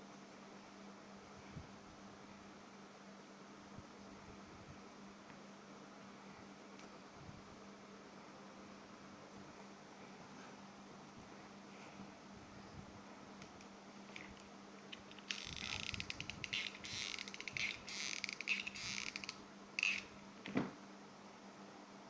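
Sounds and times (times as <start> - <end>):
crackly clicking of glue gun: 13.4 - 20.1.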